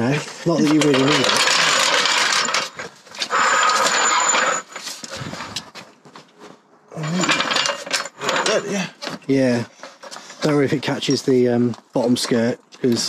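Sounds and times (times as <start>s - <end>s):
trolley jack scraping over bricks: 0.0s - 5.8s, 7.0s - 11.3s.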